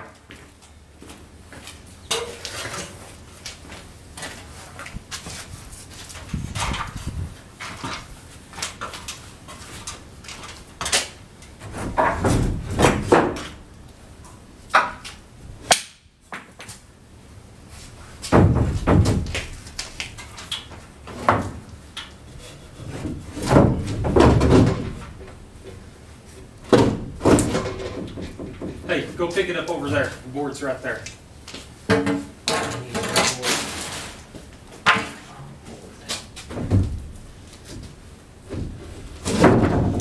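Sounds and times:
lumber knocking and thumping: 11.6s - 13.6s, 18.2s - 21.7s, 22.9s - 25.8s, 26.6s - 29.2s, 31.9s - 33.1s, 36.3s - 40.0s.

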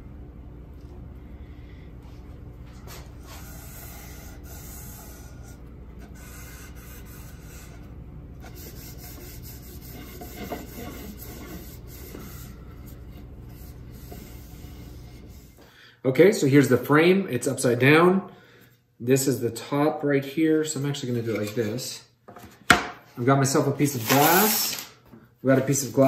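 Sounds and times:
low steady hum: 0.0s - 26.0s
cloth rubbing on wood: 8.4s - 15.6s.

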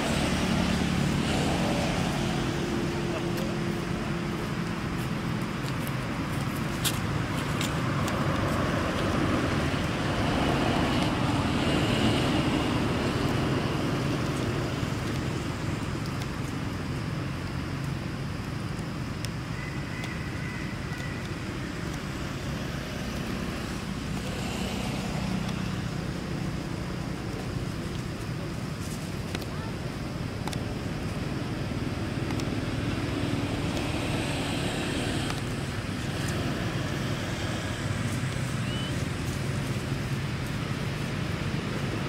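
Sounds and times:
faint high chirps: 38.6s - 39.0s.

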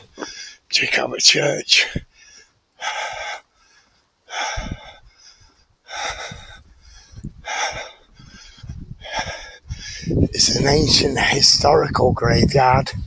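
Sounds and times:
man breathing hard: 0.0s - 0.7s, 1.9s - 10.4s.

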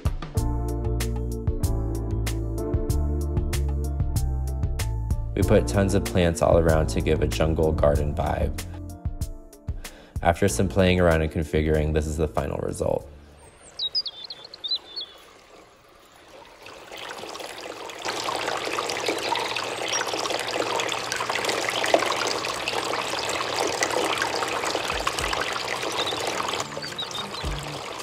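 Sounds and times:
faint bird chirps: 13.2s - 16.6s, 18.7s - 28.0s
water trickling and splashing: 13.2s - 28.0s.

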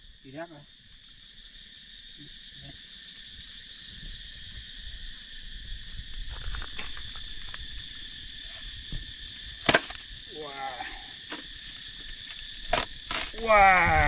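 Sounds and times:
insects droning: 0.0s - 14.0s
watermelon rind cracking: 12.2s - 13.6s.

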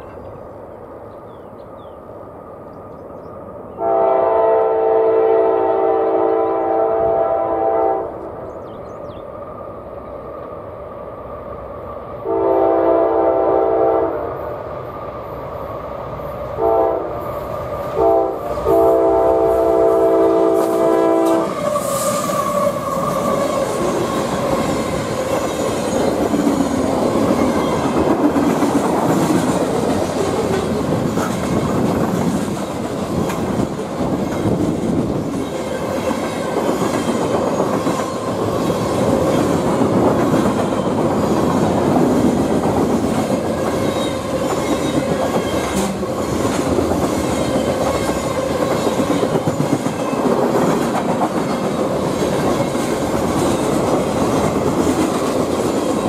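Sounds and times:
freight train passing: 0.0s - 56.0s
locomotive horn blasts: 3.8s - 8.2s, 12.2s - 14.3s, 16.6s - 17.2s, 18.0s - 21.6s.

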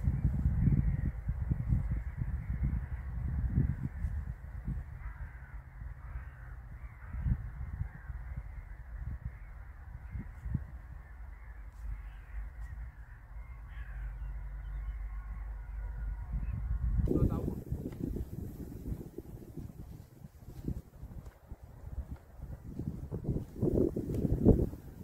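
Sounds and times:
wind buffeting microphone: 0.0s - 25.0s
faint bird calls: 0.6s - 20.0s.

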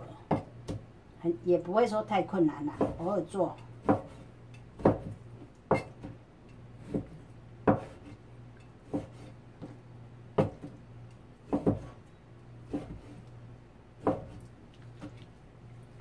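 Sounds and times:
cleaver chopping on cutting board: 2.8s - 3.1s, 3.8s - 4.2s, 4.8s - 6.2s, 6.8s - 8.2s, 8.9s - 9.8s, 10.4s - 10.8s, 11.5s - 12.0s, 12.7s - 13.2s, 14.0s - 14.4s.

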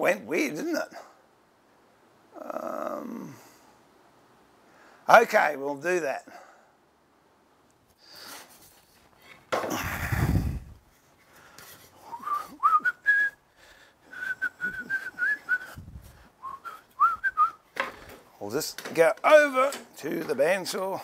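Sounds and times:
man whistling: 12.0s - 13.4s, 14.1s - 15.8s, 16.4s - 17.6s.

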